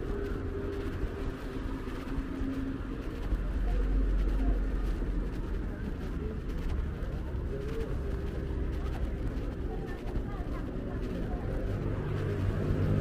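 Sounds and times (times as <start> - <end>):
street traffic rumble: 0.0 - 13.0.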